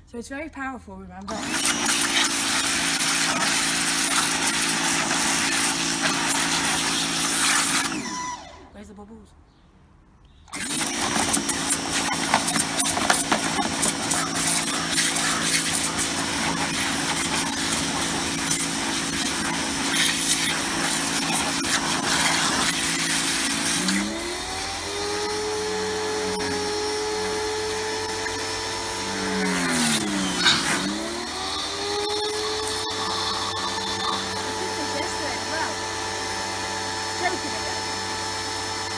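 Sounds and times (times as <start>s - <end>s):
pressure washer motor hum: 1.2s - 8.7s, 10.5s - 38.9s
water jet hissing on plastic: 1.5s - 7.9s, 10.8s - 24.3s.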